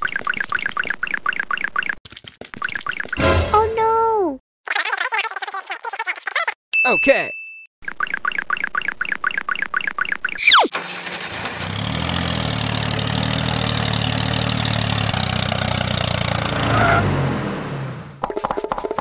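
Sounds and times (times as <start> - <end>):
tractor engine running: 10.8 - 18.3.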